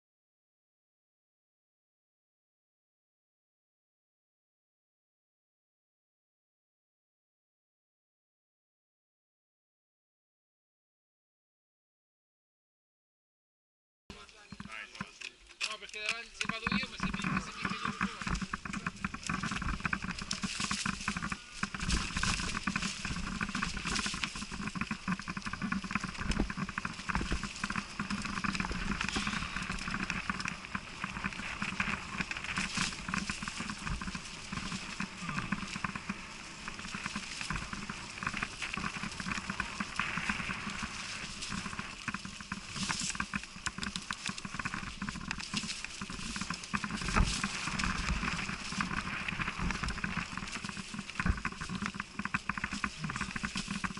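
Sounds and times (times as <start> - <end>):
bike rattling over bumps: 14.1 - 53.9
bike tyres crackling over leaves: 14.1 - 53.9.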